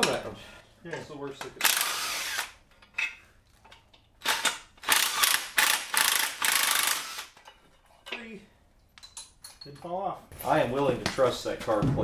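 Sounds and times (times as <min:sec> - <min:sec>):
impact wrench bursts: 0:01.6 - 0:02.6, 0:04.2 - 0:07.5.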